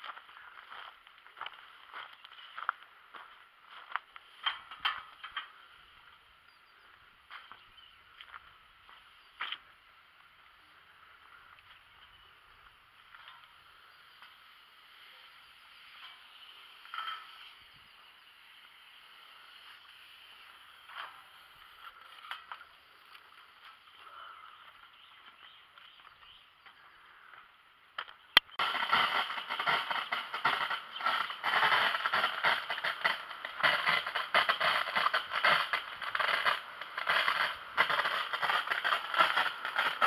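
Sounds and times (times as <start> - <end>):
water jet spattering on foliage: 28.6 - 40.0.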